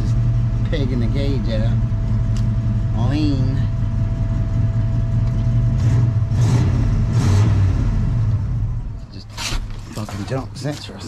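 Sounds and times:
thin steady whine: 0.0s - 5.7s
engine idling: 0.0s - 11.0s.

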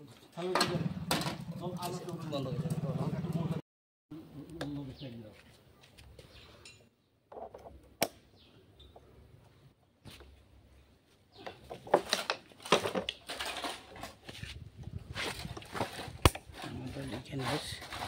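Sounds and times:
metal parts clinking and clanking: 11.8s - 14.2s.

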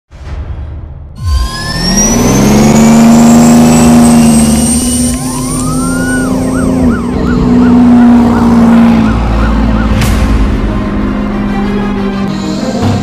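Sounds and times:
loud low drone: 0.1s - 13.0s
police siren wailing and yelping: 4.6s - 10.2s.

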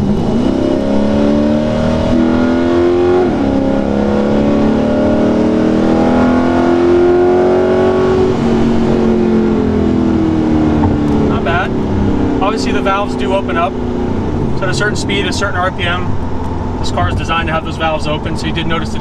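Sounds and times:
car engine revving at full throttle: 0.0s - 19.0s.

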